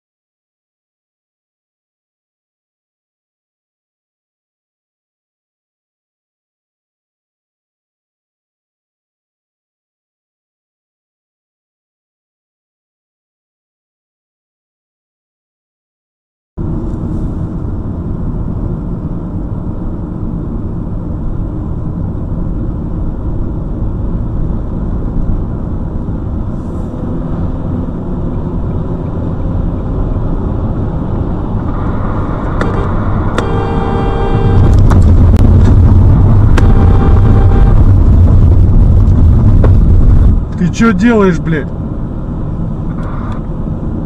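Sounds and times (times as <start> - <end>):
car road and engine noise: 16.6 - 44.0
long horn tone: 31.7 - 38.4.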